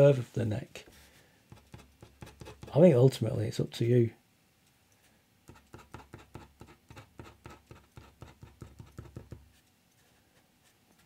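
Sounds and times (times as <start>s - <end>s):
pen scratching on paper: 1.5s - 2.7s, 5.5s - 9.4s.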